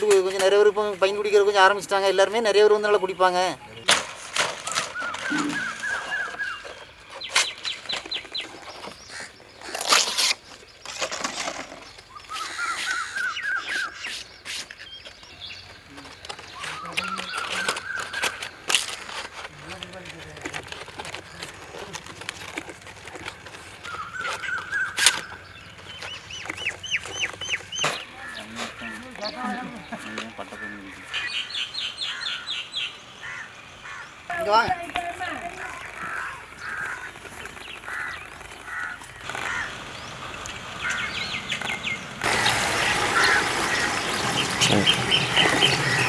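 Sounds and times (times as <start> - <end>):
palm leaf crackling and snapping: 3.8 - 13.0, 15.7 - 28.8, 34.7 - 46.0
small birds chirping: 4.6 - 46.0
high rising bird chirps: 12.0 - 15.6.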